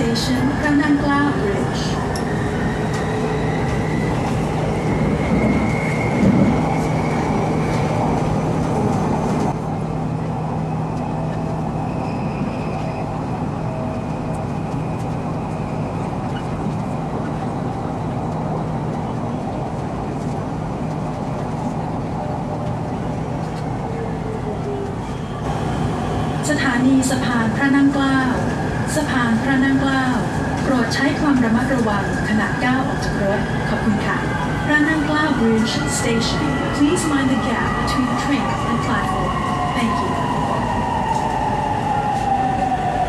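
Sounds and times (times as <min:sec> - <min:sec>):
train wheels rumbling on rails: 0:00.0 - 0:43.0.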